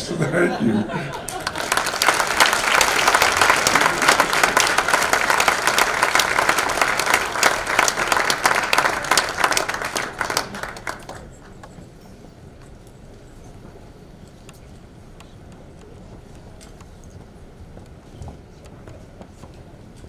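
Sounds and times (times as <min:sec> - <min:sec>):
audience applauding: 0:01.1 - 0:11.8.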